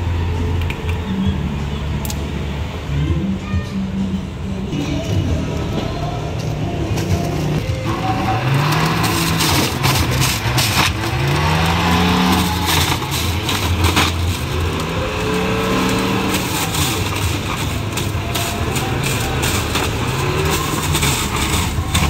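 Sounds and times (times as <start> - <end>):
carrots crunching: 6.5 - 22.0.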